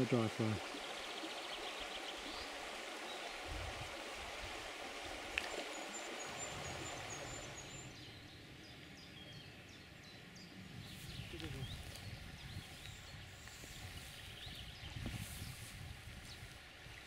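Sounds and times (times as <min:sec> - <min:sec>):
river water rushing: 0:00.0 - 0:08.0.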